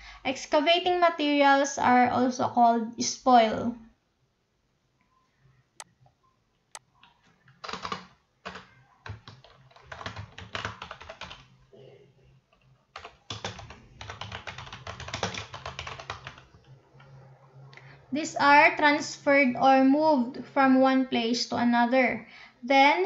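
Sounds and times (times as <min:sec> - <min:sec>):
keyboard typing: 0:06.7 - 0:11.6, 0:12.5 - 0:17.2.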